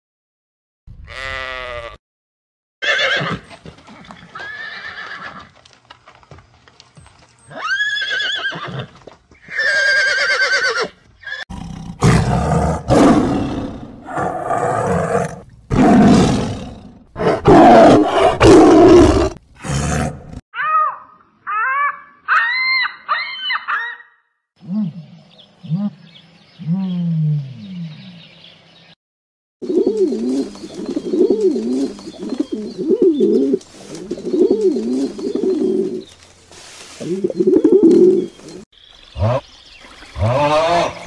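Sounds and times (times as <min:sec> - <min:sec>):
sheep bleating: 0:01.1 - 0:02.0
tiger roaring: 0:11.5 - 0:20.4.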